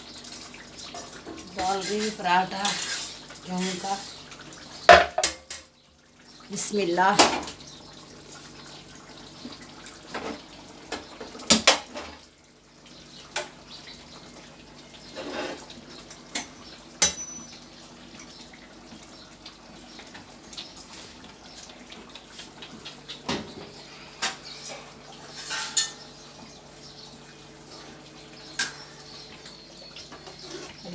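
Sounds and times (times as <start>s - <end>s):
metal kitchenware clanking: 0.1s - 5.8s, 15.0s - 17.6s, 24.2s - 27.1s, 28.4s - 29.2s.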